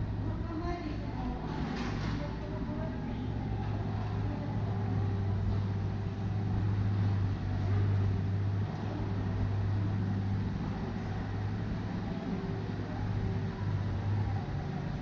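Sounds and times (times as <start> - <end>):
motor vehicle engine hum: 0.0 - 15.0.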